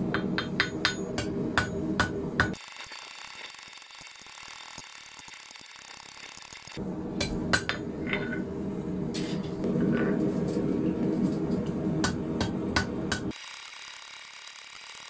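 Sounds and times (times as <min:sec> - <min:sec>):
hammer striking steel on anvil: 0:00.0 - 0:02.6, 0:07.2 - 0:08.2, 0:12.0 - 0:13.3.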